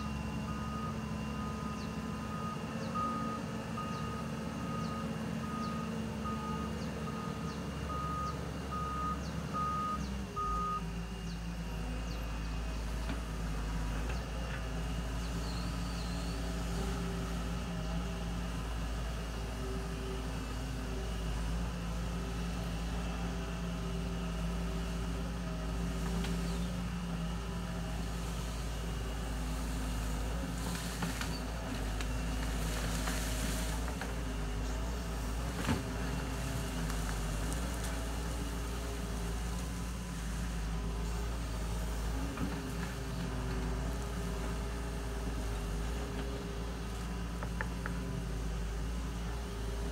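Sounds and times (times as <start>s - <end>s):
excavator diesel engine running: 0.0s - 49.9s.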